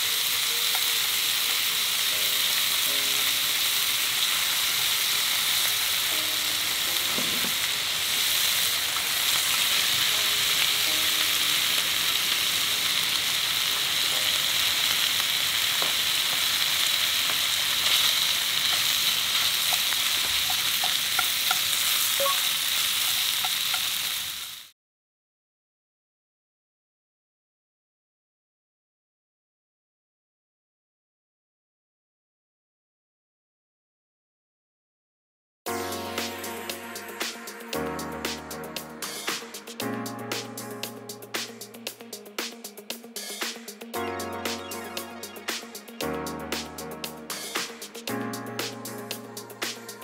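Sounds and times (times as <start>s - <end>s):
food sizzling in a frying pan: 0.0s - 24.8s, 35.7s - 43.4s
small pops of frying food: 15.0s - 24.2s.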